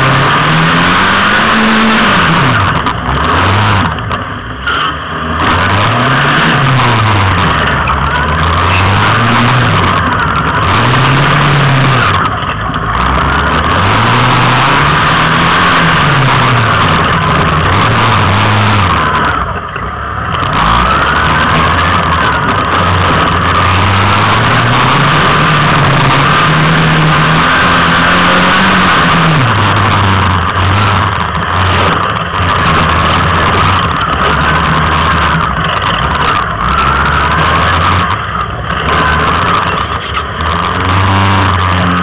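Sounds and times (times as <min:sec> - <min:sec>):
buggy engine revving: 0:00.0 - 0:42.0.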